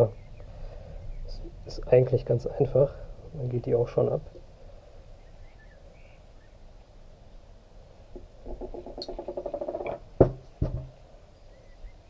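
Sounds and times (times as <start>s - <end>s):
sharp knocks: 8.1s - 11.0s.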